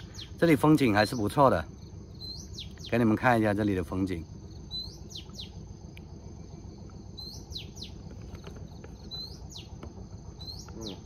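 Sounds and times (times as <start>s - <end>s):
high insect drone: 0.0s - 11.0s
low outdoor rumble: 0.0s - 11.0s
wild bird calling whistles: 2.2s - 3.0s, 4.7s - 5.6s, 7.2s - 8.0s, 10.4s - 11.0s.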